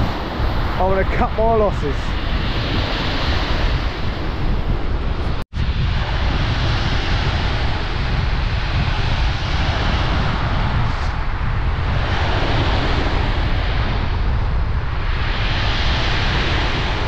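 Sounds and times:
surf breaking on shore: 0:00.0 - 0:17.0
wind buffeting microphone: 0:00.0 - 0:17.0.

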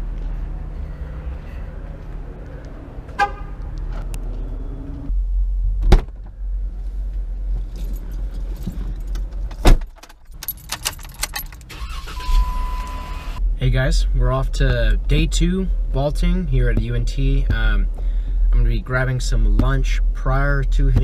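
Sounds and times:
car door clunking shut: 0:05.8 - 0:06.3
keys jangling: 0:10.0 - 0:11.7
short beep: 0:12.2 - 0:13.4.

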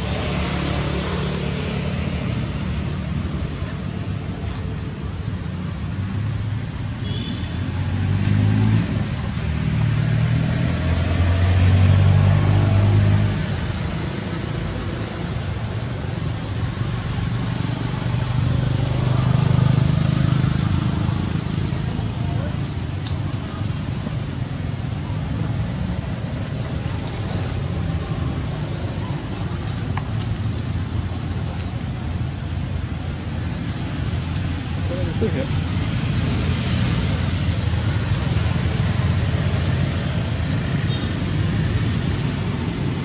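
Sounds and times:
vehicle engines passing: 0:00.0 - 0:43.0.

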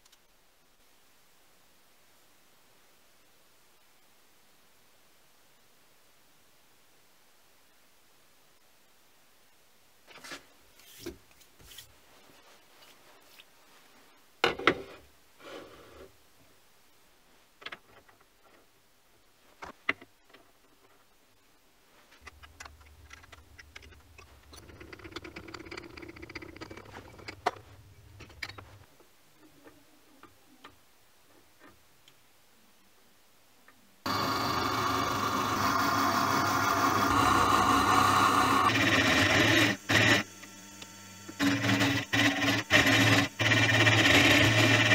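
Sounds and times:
low hum: 0:22.2 - 0:28.9
milling machine cutting steel: 0:34.1 - 0:44.9.

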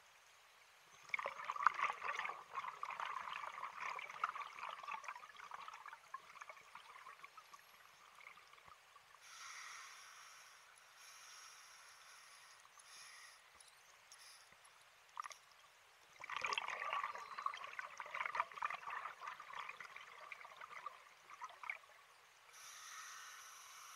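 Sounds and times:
underwater breath bubbles gurgling: 0:01.0 - 0:13.4, 0:16.2 - 0:23.9
faint hiss with whistling tones: 0:09.1 - 0:14.9, 0:17.1 - 0:17.6, 0:22.1 - 0:23.9.

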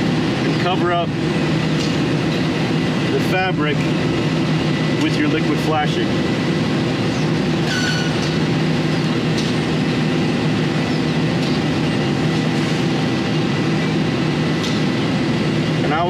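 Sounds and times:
machinery drone: 0:00.0 - 0:16.0
high squeak: 0:07.6 - 0:08.2.

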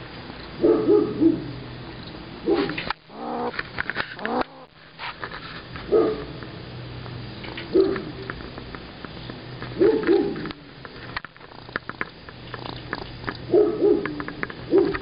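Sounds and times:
squirrel calling: 0:02.4 - 0:03.6, 0:04.2 - 0:04.7
sharp clicks and rattles: 0:02.6 - 0:15.0.

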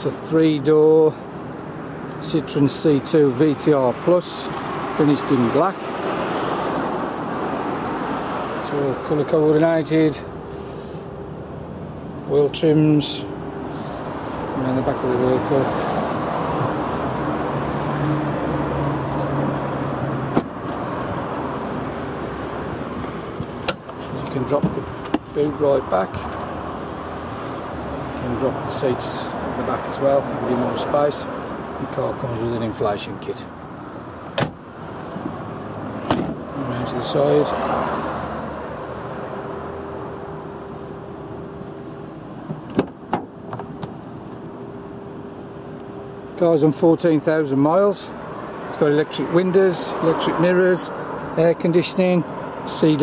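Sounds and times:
motor traffic hum: 0:00.0 - 0:53.0
low engine drone: 0:08.8 - 0:29.4
tailgate latch click: 0:34.4 - 0:34.6.

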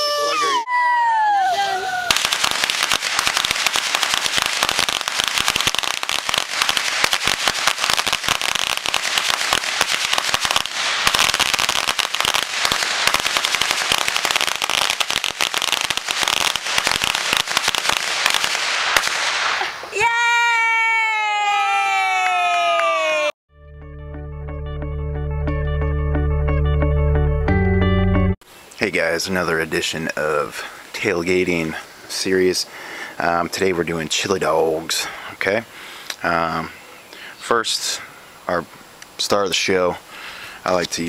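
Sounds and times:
firework crackling: 0:02.1 - 0:20.2.

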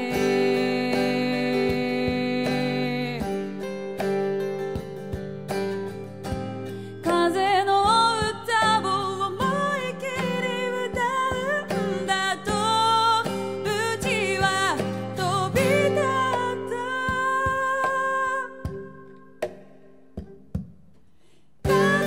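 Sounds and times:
woman singing: 0:00.0 - 0:04.0, 0:07.0 - 0:19.4, 0:21.6 - 0:22.0
acoustic guitar: 0:00.0 - 0:22.0.

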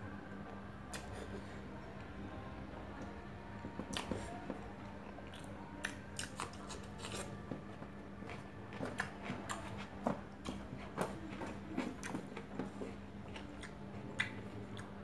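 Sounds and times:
steady low hum: 0:00.0 - 0:15.0
wet chewing and smacking: 0:05.1 - 0:15.0.

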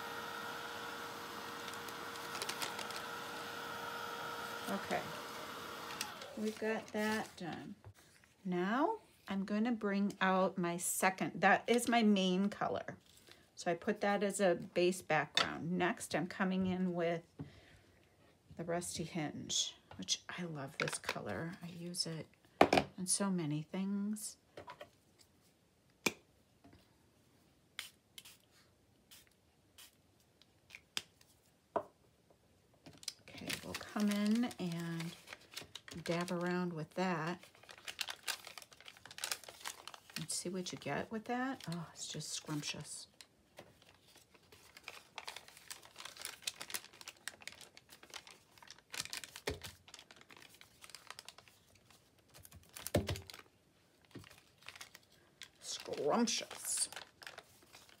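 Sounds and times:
paper rustling and crackling: 0:01.6 - 0:03.2, 0:05.9 - 0:08.4, 0:33.2 - 0:36.5, 0:37.3 - 0:40.4, 0:42.4 - 0:58.0.

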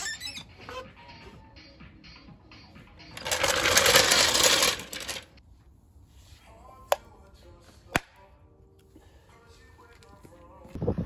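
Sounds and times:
trolley jack rattling on tarmac: 0:03.2 - 0:05.2.

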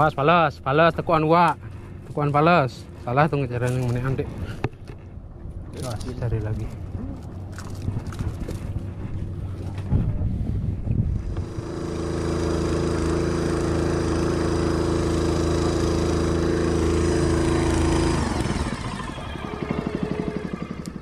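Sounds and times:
small boat engine running: 0:06.7 - 0:21.0.

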